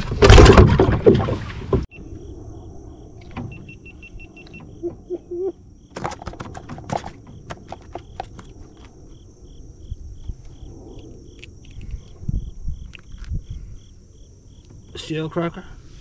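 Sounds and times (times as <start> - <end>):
cricket chirping: 1.9 - 16.0
fish clicks and slaps: 5.9 - 8.9.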